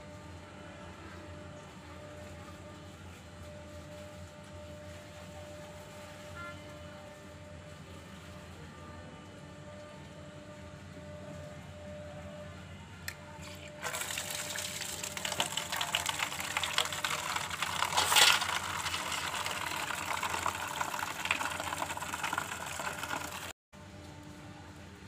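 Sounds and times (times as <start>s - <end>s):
water pouring into a steel basin: 13.4s - 23.5s.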